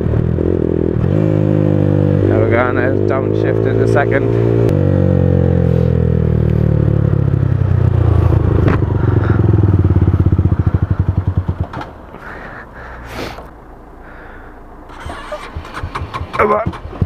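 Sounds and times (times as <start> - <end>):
motorcycle engine lugging and stalling: 14.9 - 17.0.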